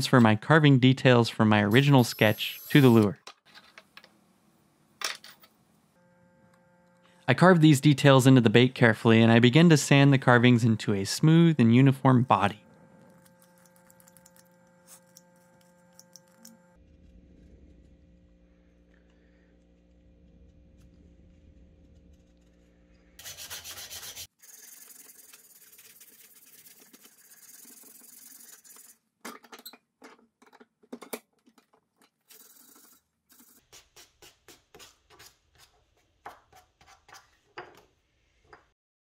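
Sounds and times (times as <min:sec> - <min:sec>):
sandpaper rasping on wood: 0:01.8 - 0:03.0, 0:23.2 - 0:29.0
faint hum: 0:05.9 - 0:23.2.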